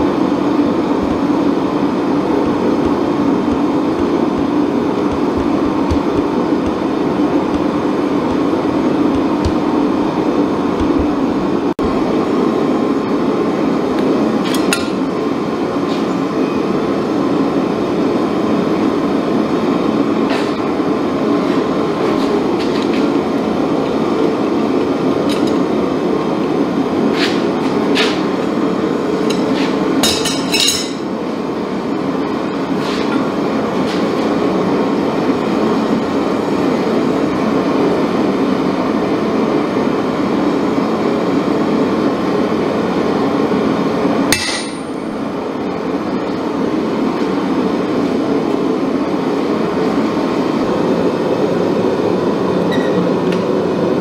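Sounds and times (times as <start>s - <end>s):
metal clanging on anvil: 29.3s - 31.1s, 44.4s - 45.0s.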